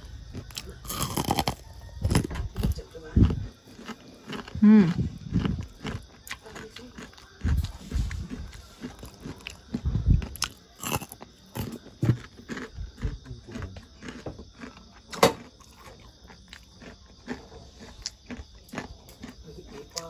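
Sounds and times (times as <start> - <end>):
crunching and chewing food: 0.0 - 20.0.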